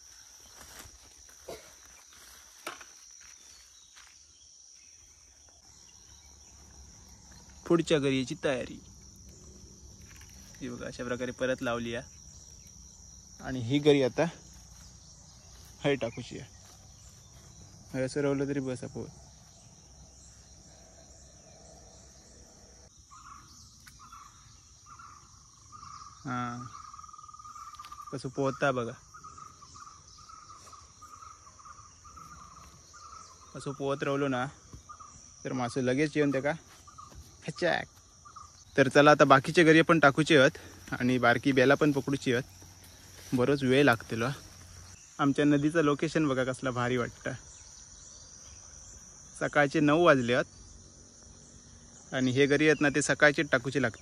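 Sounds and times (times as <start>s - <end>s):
footsteps on dry leaves: 0.0s - 7.6s, 14.4s - 18.0s, 40.6s - 45.0s
crickets trilling: 0.0s - 54.0s
insect drone: 0.0s - 54.0s.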